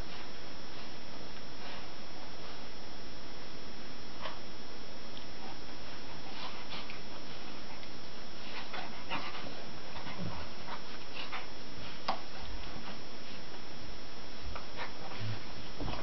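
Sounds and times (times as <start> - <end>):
dogs scuffling on carpet: 14.4 - 16.0.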